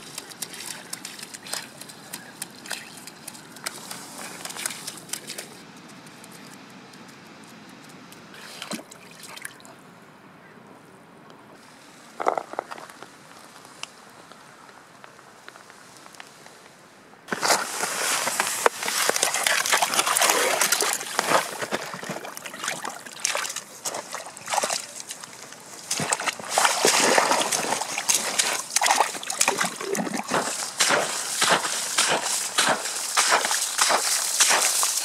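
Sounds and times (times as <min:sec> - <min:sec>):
boots splashing through slush: 0:00.0 - 0:05.6, 0:17.3 - 0:35.0.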